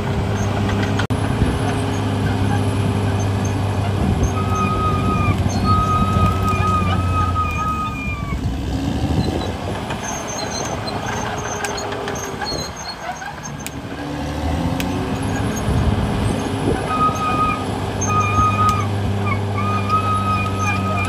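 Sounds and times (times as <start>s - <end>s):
dozer diesel engine under load: 0.0s - 21.0s
high whining tone: 2.2s - 8.5s, 15.2s - 21.0s.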